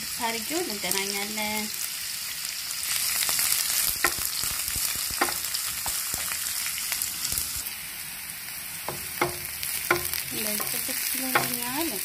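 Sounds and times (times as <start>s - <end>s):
onions sizzling in oil: 0.0s - 12.0s
spatula knocking on pan: 5.2s - 6.0s, 8.9s - 12.0s.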